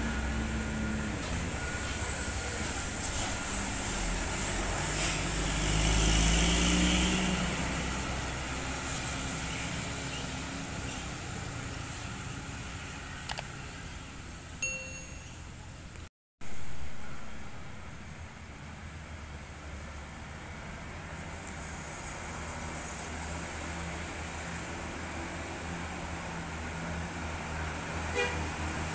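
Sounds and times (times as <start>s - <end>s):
bus engine rumble passing: 0.0s - 14.6s, 15.5s - 28.9s
short bell-like ding: 14.6s - 15.6s.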